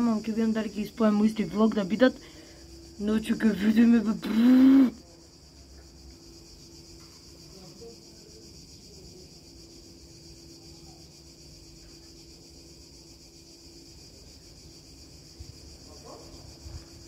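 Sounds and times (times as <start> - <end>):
faint steady hum: 0.0 - 8.2
insects chirring: 0.0 - 17.0.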